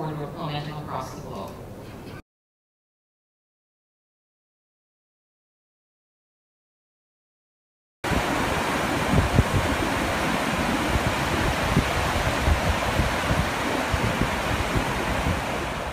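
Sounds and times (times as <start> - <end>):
small waves washing on shore: 8.0 - 15.9
wind buffeting microphone: 8.0 - 15.9.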